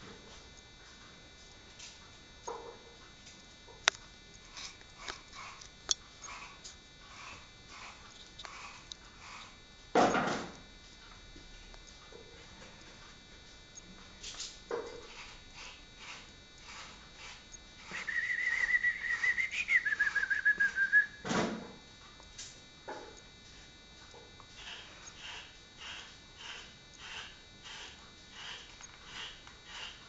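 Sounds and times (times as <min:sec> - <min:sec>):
canary singing rolling trill: 0:15.6 - 0:21.0.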